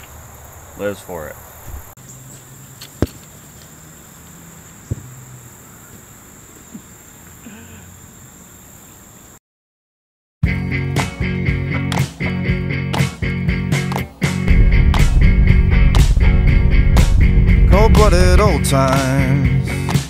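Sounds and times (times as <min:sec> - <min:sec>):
high insect drone: 0:00.0 - 0:09.4
rock music with guitar: 0:10.5 - 0:20.0.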